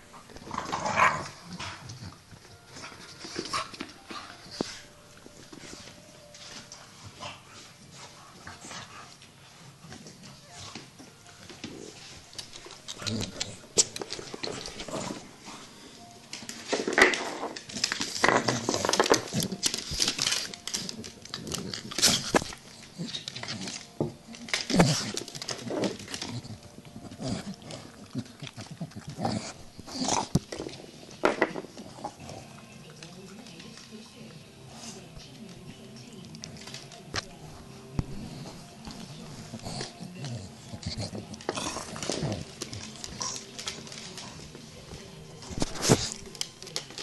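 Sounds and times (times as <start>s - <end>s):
dogs scuffling: 0.1s - 47.0s
claws clicking on wooden floor: 16.3s - 29.3s.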